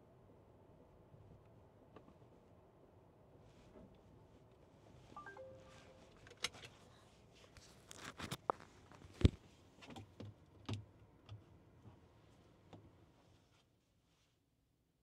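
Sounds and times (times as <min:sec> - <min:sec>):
short steady tone: 0:05.2 - 0:06.2.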